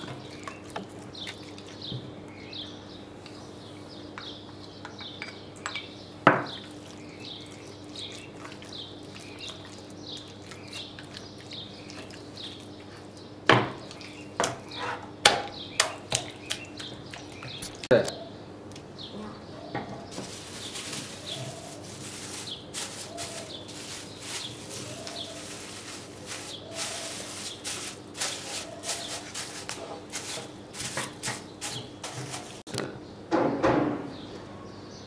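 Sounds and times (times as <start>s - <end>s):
plastic bag crinkling: 20.1s - 32.6s.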